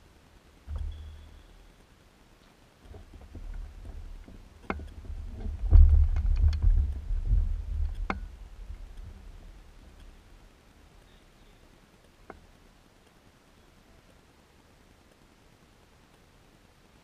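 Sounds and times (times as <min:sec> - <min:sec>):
knocks and clicks of metal frame: 0:02.8 - 0:08.4
wind buffeting microphone: 0:02.9 - 0:10.4.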